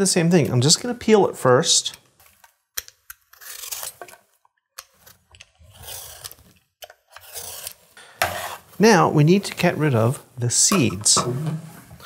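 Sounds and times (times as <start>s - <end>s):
peeler scraping squash skin: 3.3s - 4.1s, 4.9s - 8.6s.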